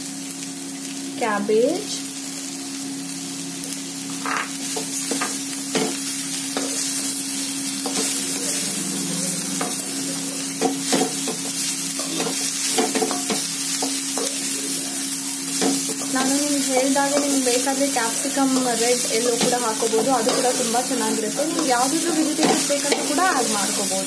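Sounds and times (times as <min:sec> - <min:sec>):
vegetables sizzling in hot oil: 0:00.0 - 0:24.0
spatula scraping and knocking pan: 0:10.6 - 0:14.4, 0:15.6 - 0:23.5.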